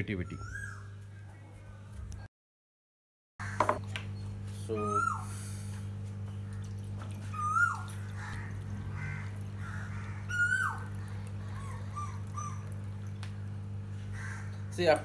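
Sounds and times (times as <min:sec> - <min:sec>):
steady low hum: 0:03.4 - 0:15.0
whistled animal call: 0:04.8 - 0:05.5, 0:07.3 - 0:07.9, 0:10.3 - 0:10.8.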